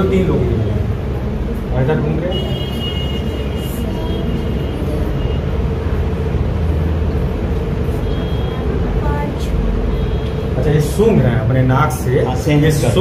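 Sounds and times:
constant hum: 0.0 - 13.0
steady low rumble: 3.4 - 13.0.

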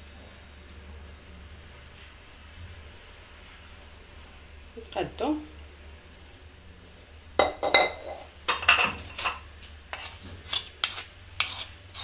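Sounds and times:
utensils scraping a platter: 9.2 - 12.0.

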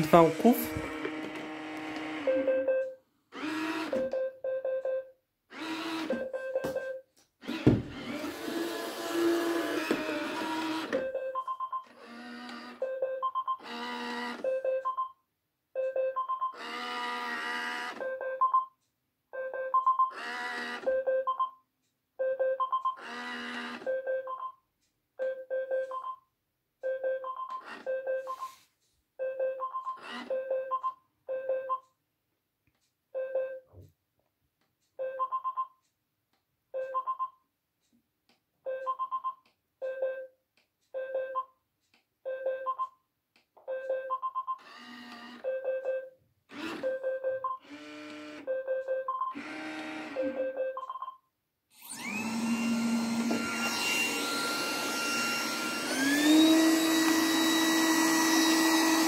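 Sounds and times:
brush motor whirring: 0.0 - 2.4, 3.4 - 4.0, 7.4 - 10.9, 47.6 - 48.4, 49.4 - 50.2, 51.8 - 59.0.

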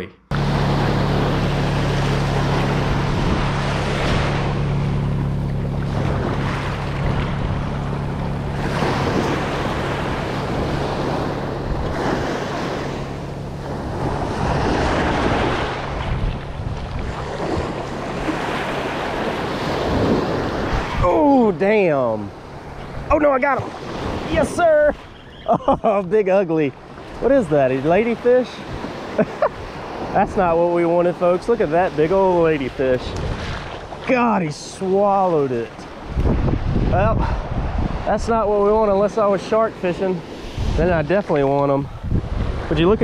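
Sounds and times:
steady low hum: 0.1 - 24.2
small waves breaking: 0.3 - 43.0
wind buffeting microphone: 0.4 - 34.2, 35.5 - 43.0.

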